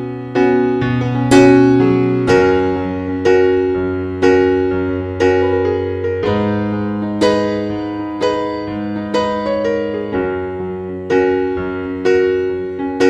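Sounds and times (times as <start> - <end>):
piano playing slow chords: 0.0 - 13.0.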